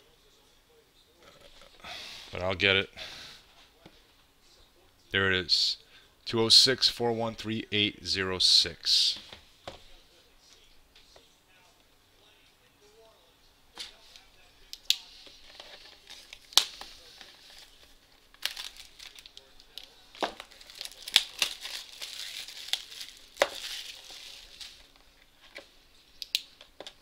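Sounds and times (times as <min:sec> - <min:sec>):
plastic wrap crinkling and tearing: 0:15.4 - 0:25.0.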